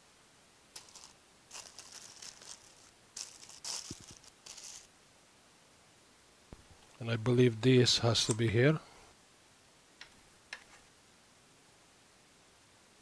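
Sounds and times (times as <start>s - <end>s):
plastic bag crinkling: 0.8s - 4.9s.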